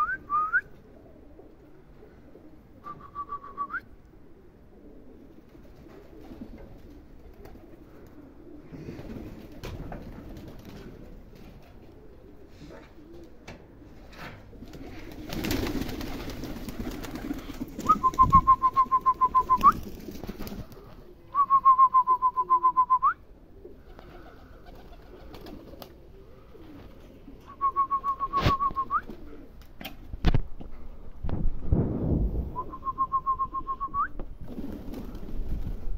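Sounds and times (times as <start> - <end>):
person whistling a trilled call: 0.0 - 0.7, 2.8 - 3.8, 17.8 - 19.8, 21.3 - 23.2, 27.5 - 29.1, 32.6 - 34.2.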